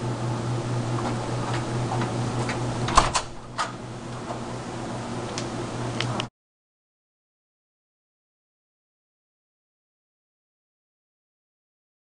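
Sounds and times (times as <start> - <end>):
low room hum: 0.0 - 6.3.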